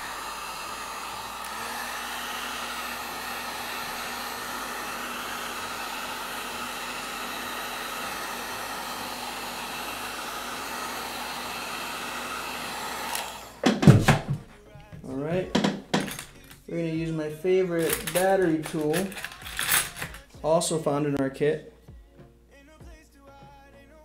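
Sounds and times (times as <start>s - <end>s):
heat gun blowing: 0.0s - 14.4s, 17.1s - 20.3s.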